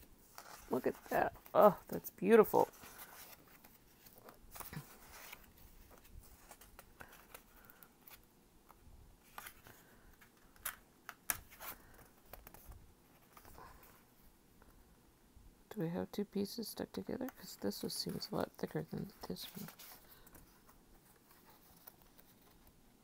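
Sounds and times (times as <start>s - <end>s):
paper rustling: 0.2s - 8.3s, 18.0s - 22.8s.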